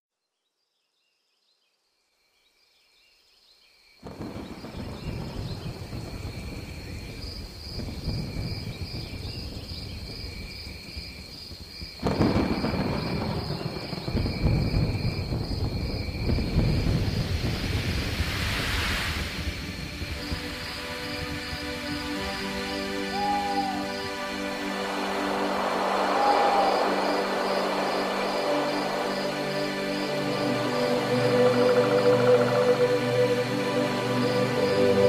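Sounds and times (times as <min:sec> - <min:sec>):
high insect chirping: 0:02.7 - 0:35.0
thunder: 0:04.0 - 0:21.6, 0:24.8 - 0:30.8
rain: 0:04.0 - 0:35.0.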